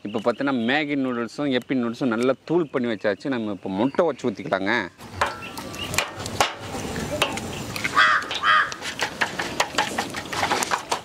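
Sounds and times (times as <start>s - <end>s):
crow cawing: 7.9s - 8.8s.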